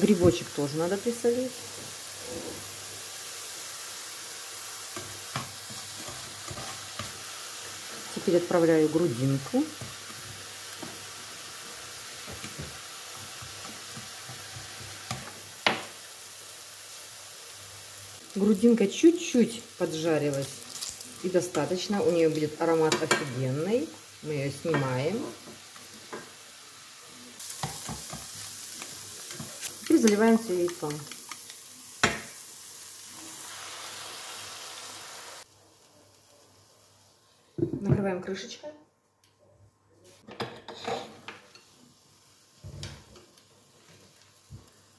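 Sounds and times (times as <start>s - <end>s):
food sizzling in a frying pan: 0.0s - 38.6s, 40.1s - 44.9s
spatula stirring and tapping pan: 4.9s - 7.2s, 12.2s - 15.9s, 27.6s - 28.4s.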